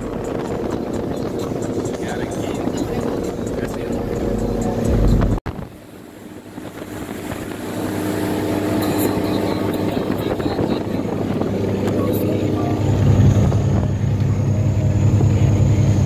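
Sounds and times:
wind rushing: 0.0 - 5.8
motorboat engine humming: 0.0 - 16.0.

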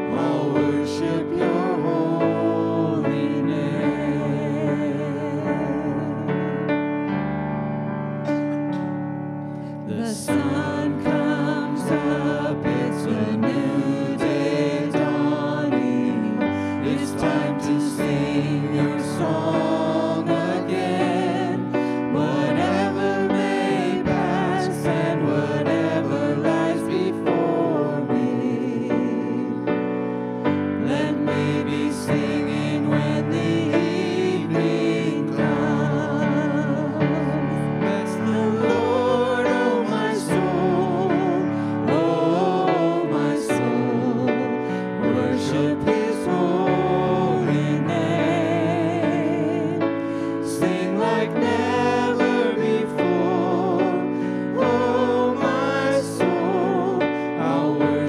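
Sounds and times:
people singing with vibrato: 0.0 - 58.0
piano or keyboard: 0.0 - 58.0.

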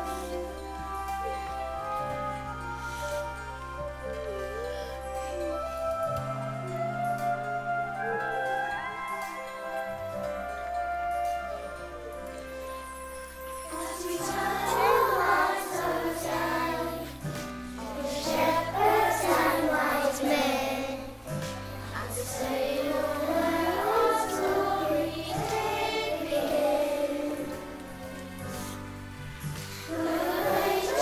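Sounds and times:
instrumental accompaniment: 0.0 - 31.0
children's choir singing: 13.4 - 28.8, 29.4 - 31.0.

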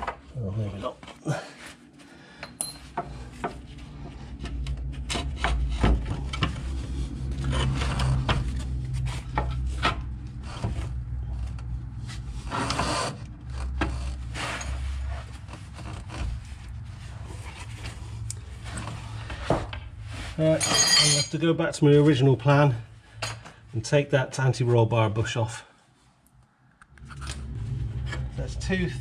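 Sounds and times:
low steady hum: 0.0 - 29.0
metal scraping and rubbing: 3.2 - 22.3, 26.9 - 29.0.

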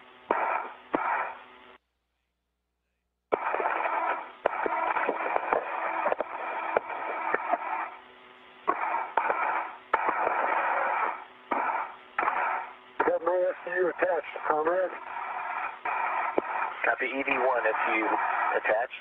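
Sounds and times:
radio static hiss: 0.0 - 1.8, 3.3 - 19.0
radio channel keying clicks: 3.4 - 7.6.

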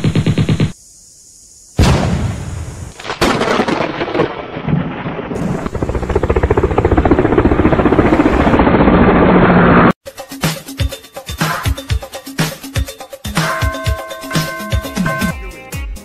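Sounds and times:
rumbling crackling thunder-like noise: 1.8 - 9.9.

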